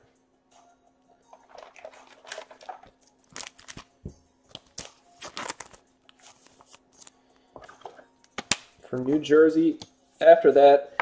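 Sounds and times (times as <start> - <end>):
packaging rustling and crinkling: 1.4 - 3.9, 4.5 - 7.2
cards clicking and tapping: 8.3 - 9.1.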